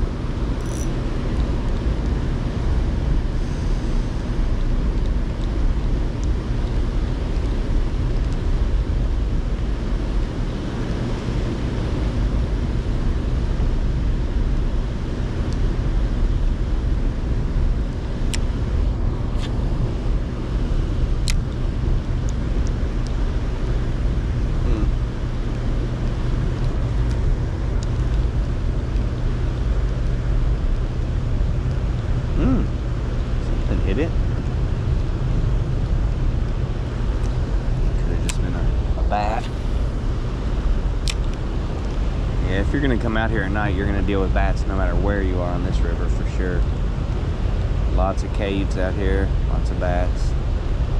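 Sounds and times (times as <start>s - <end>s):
powerhouse hum: 0.0s - 50.9s
running water rumble: 0.0s - 50.9s
sharp light clicks: 0.6s - 1.5s.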